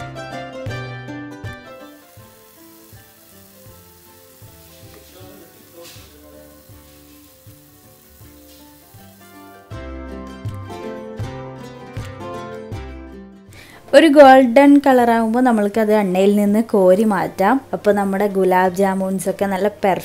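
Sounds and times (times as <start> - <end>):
quiet instrumental music: 0.0 - 20.0
oil sizzling: 1.4 - 10.7.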